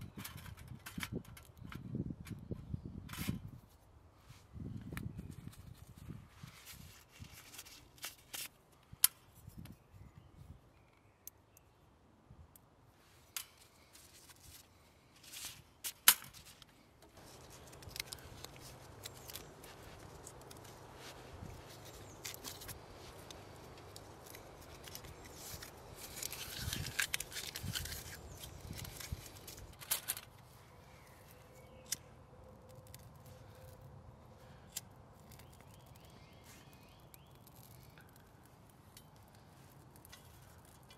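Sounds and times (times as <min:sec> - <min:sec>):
camping kit clicks and knocks: 0:15.3 - 0:30.4.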